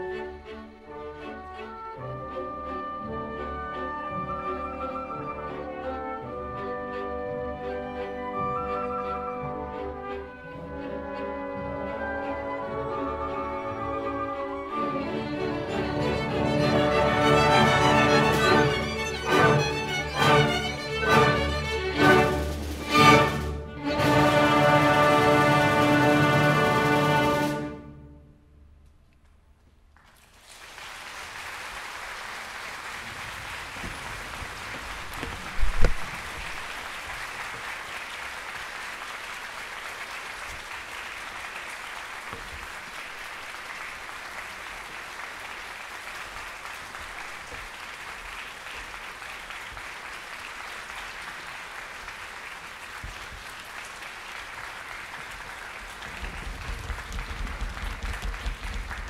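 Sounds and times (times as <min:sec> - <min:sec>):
audience applauding: 0:12.2 - 0:27.8, 0:29.9 - 0:59.0.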